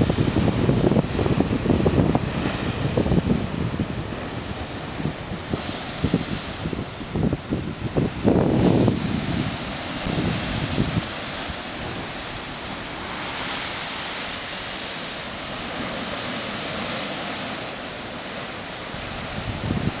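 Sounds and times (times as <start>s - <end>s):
sea surf rushing: 0.0s - 20.0s
wind: 0.0s - 20.0s
wind buffeting microphone: 0.0s - 20.0s.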